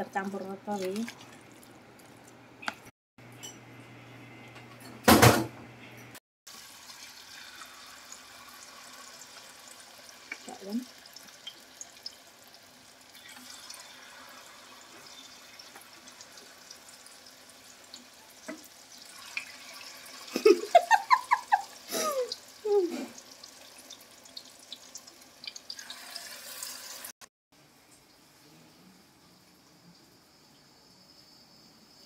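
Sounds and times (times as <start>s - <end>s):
batter sizzling in hot oil: 6.5s - 27.2s.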